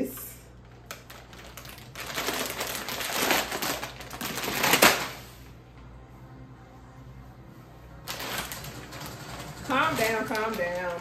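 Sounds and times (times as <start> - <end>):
plastic snack bag crinkling: 0.5 - 5.2, 8.0 - 11.0.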